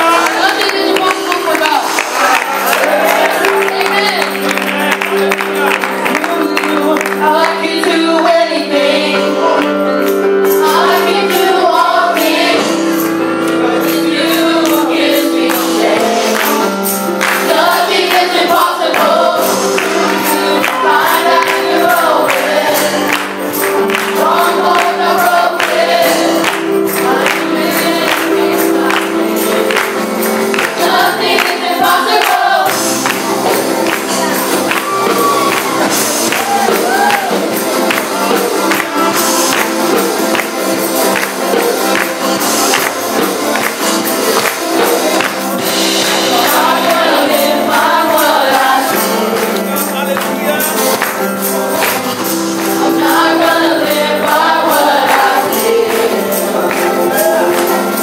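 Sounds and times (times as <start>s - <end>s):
live church band: 0.0s - 58.0s
boy singing into microphone: 6.1s - 9.9s.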